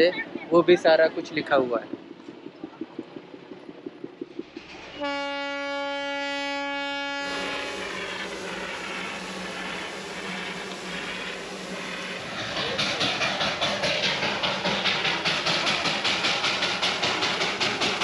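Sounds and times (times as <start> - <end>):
faint rapid ticking: 0.1 - 18.0
steam venting hiss: 4.4 - 18.0
steam whistle blast: 5.0 - 8.0.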